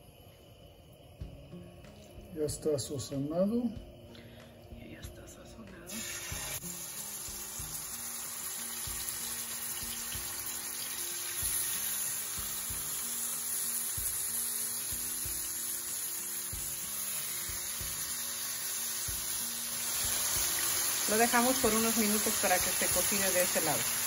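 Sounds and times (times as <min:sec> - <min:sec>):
fish sizzling in a frying pan: 0:05.9 - 0:24.0.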